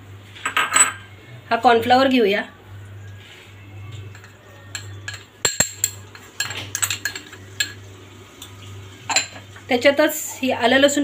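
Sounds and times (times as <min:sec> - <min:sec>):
metal spoon clinking on glass bowl: 0:04.1 - 0:07.8.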